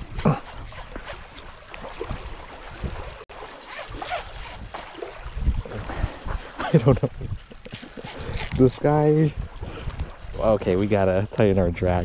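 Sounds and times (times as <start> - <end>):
fishing reel whirring: 0.0 - 5.4, 7.6 - 9.3
small waves lapping: 0.0 - 11.8
wind buffeting microphone: 3.9 - 12.0.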